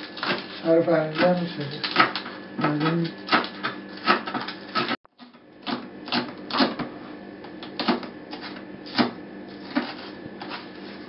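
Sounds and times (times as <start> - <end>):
knife chopping on plastic board: 1.2 - 10.6.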